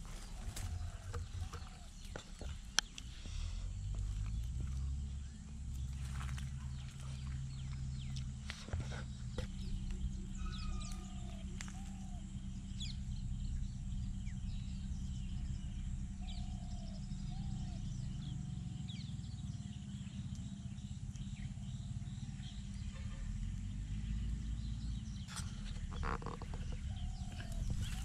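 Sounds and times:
birds chirping and whistling: 0.0s - 28.0s
low rumble: 0.0s - 28.0s.

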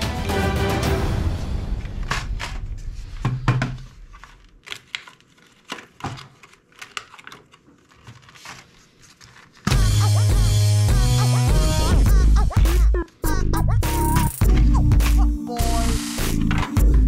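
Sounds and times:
plastic crinkling: 3.8s - 9.7s.

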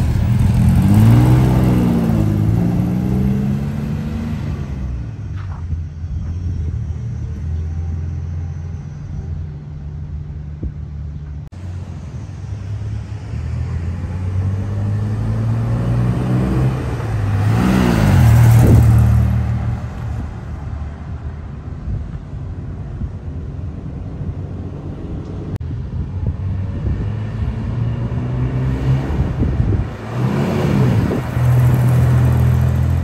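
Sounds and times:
truck engine passing by: 0.0s - 5.4s, 11.6s - 20.8s, 26.8s - 33.0s.

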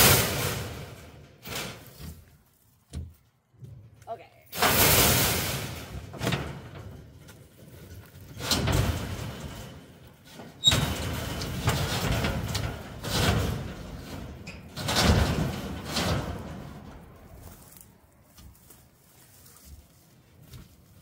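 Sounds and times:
metal scraping against metal: 4.5s - 17.9s.

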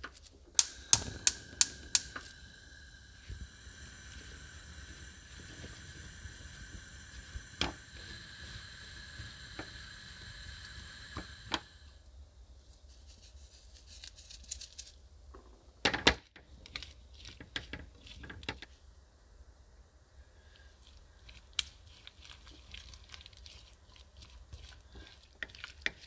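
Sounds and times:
spatula stirring in frying pan: 16.7s - 18.7s, 20.5s - 26.0s.

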